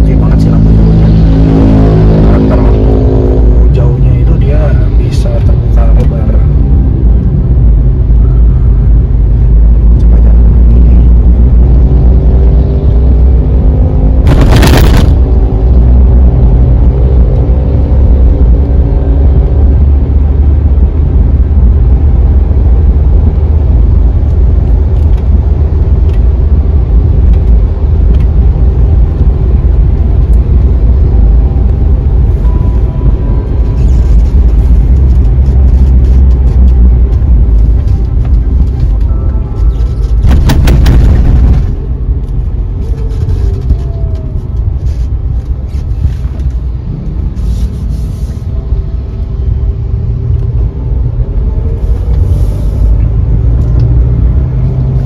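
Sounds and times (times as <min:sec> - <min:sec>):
car engine and road rumble: 0:00.0 - 0:55.0
loud noise burst: 0:14.2 - 0:15.5, 0:40.2 - 0:42.1.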